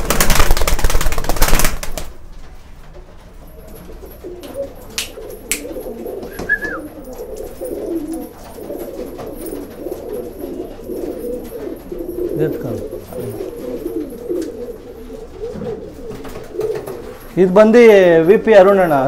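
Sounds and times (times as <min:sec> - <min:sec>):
loud rustling: 0:00.0 - 0:04.4
pigeons cooing: 0:03.5 - 0:17.4.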